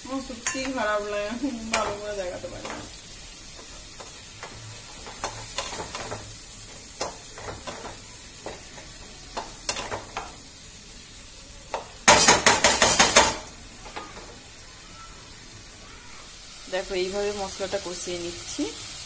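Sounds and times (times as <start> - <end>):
paste sizzling in a pan: 0.0 - 19.0
spatula scraping a pan: 1.6 - 10.3.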